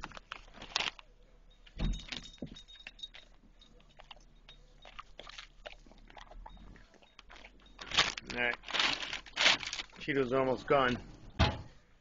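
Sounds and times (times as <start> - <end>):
snack bag crinkling: 0.0 - 1.1, 4.8 - 10.0.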